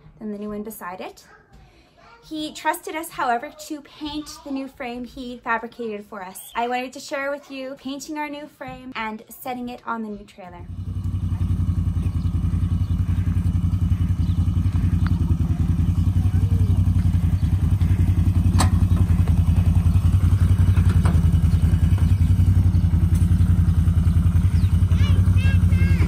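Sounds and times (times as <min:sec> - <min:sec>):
engine idling: 0:10.6 - 0:26.0.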